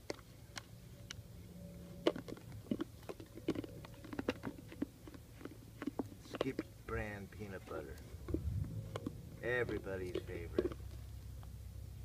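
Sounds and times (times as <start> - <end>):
puppy licking plastic jar: 0.0 - 11.6.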